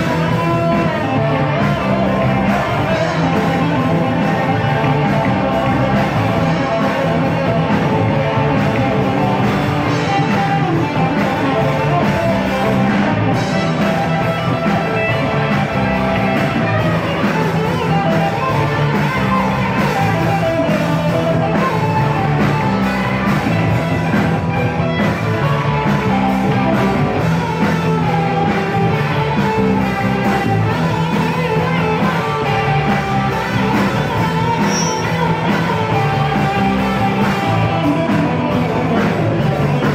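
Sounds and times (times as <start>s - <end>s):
rock band playing: 0.0s - 39.9s.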